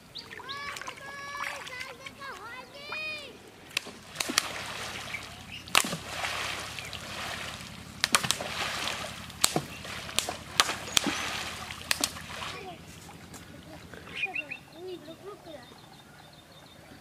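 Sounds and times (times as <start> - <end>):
people wading and splashing: 0.0 - 15.6
bamboo poles slapping water: 0.4 - 2.4, 3.6 - 13.3.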